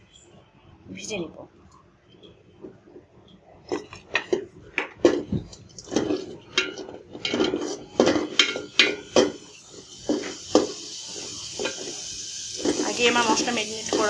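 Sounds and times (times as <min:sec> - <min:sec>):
spatula scraping metal pot: 0:05.0 - 0:14.0.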